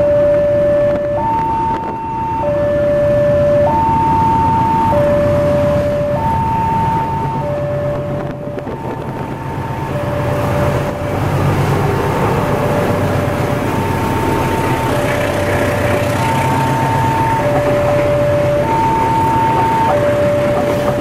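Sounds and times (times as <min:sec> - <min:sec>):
level crossing warning sirens: 0:00.0 - 0:21.0
locomotive diesel engine: 0:00.0 - 0:21.0
train wheels on rails: 0:07.9 - 0:21.0.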